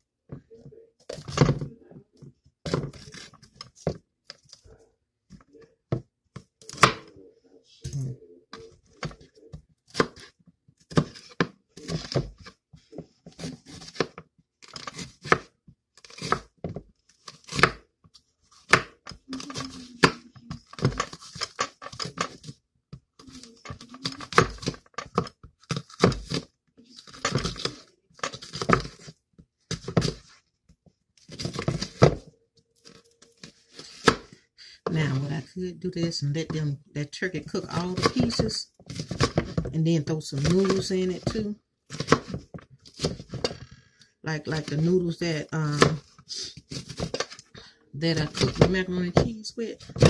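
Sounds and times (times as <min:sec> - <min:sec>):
knife slicing peppers: 0:13.3 - 0:16.5, 0:17.2 - 0:17.8, 0:23.2 - 0:29.1, 0:37.5 - 0:39.6, 0:40.4 - 0:43.5, 0:44.4 - 0:47.4.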